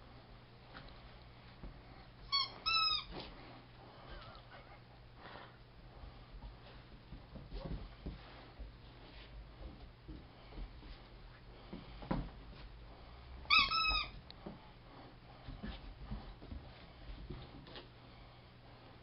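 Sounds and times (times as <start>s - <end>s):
rubber squeak toy squeaking: 2.3s - 3.1s, 13.5s - 14.2s.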